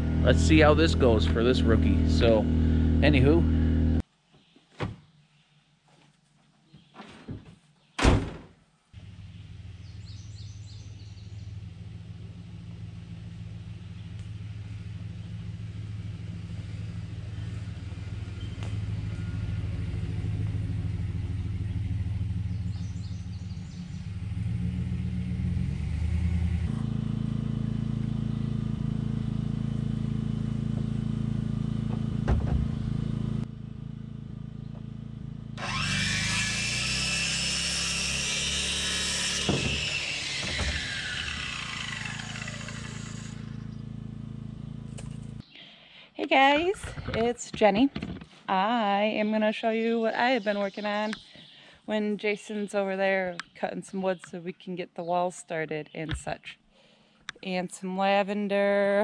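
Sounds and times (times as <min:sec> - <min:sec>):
circular saw cutting lumber: 0:00.0 - 0:04.0, 0:35.6 - 0:45.4
engine hum: 0:00.0 - 0:04.0, 0:08.9 - 0:55.2.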